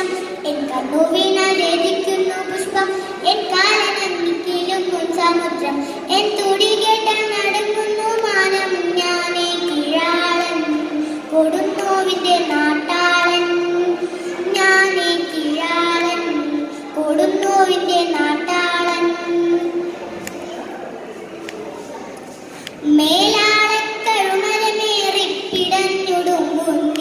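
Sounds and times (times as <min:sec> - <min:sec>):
girl chanting a poem: 0:00.0 - 0:19.9, 0:22.8 - 0:27.0
short breaths: 0:05.7 - 0:06.1, 0:10.9 - 0:11.3, 0:14.0 - 0:14.4, 0:22.4 - 0:22.8.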